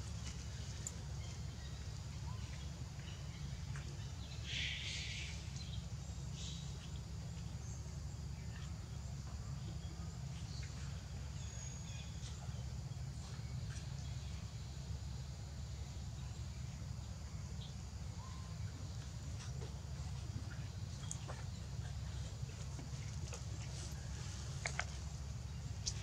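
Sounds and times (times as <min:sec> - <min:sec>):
faint clicks: 0:22.6 - 0:25.1.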